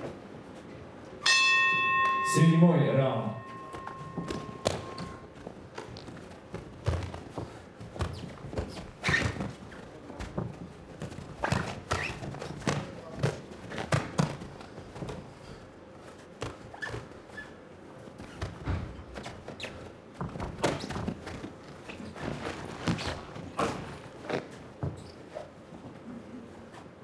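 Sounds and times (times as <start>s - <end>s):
shoes striking ring canvas: 3.2s - 25.5s
boxing gloves thudding: 3.5s - 9.6s.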